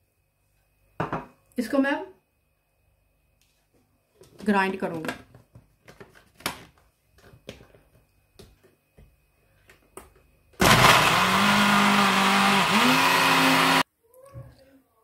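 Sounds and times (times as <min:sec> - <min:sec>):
grinder motor grinding: 0:10.6 - 0:13.8.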